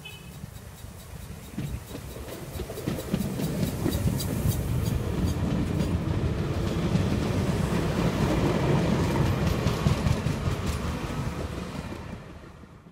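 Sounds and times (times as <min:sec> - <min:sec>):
train wheels rumbling on rails: 0:00.0 - 0:12.9
wheels clicking over rail joints: 0:00.1 - 0:12.6.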